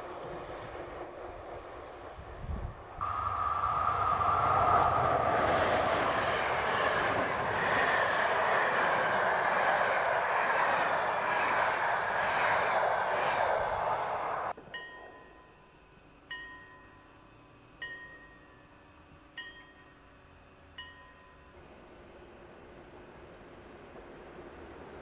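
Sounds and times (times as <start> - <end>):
train wheels rushing on rails: 0.0 - 15.3
faint chime: 14.7 - 21.7.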